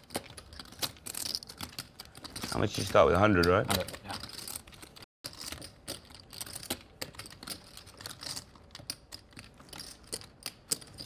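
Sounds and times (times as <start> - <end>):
poker chips clicking: 0.0 - 11.0.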